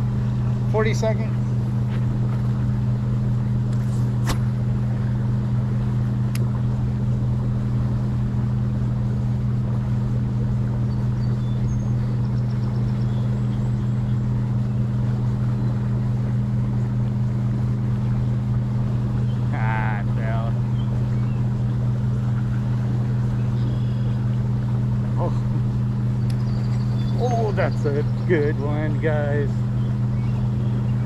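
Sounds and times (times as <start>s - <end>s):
low mechanical hum: 0.0s - 31.0s.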